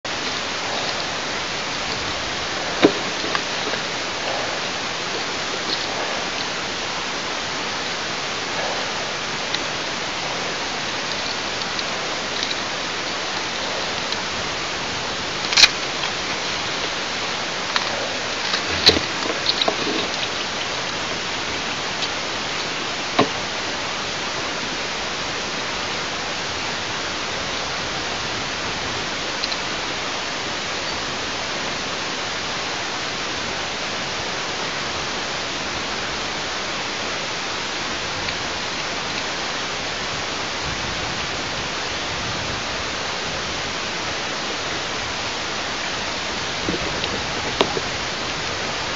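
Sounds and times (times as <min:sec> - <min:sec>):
microphone hiss: 0:00.0 - 0:48.9.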